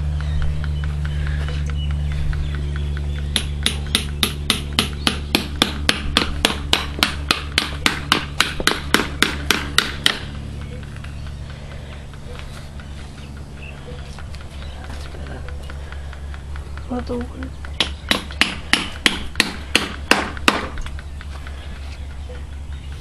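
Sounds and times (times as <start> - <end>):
low hum: 0.0 - 23.0
sharp knocks: 0.1 - 13.2, 14.0 - 21.6.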